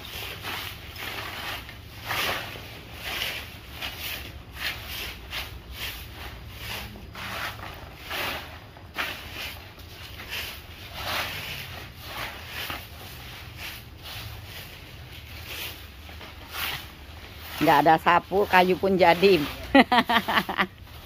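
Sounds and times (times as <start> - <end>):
brooms sweeping leaves: 0.0 - 21.0.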